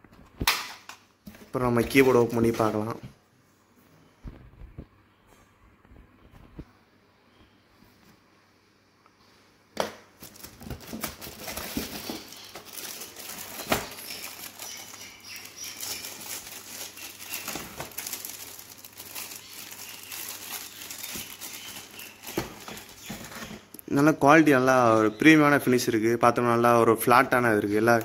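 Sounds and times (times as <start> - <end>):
plastic wrapping crinkling: 10.2 - 23.7.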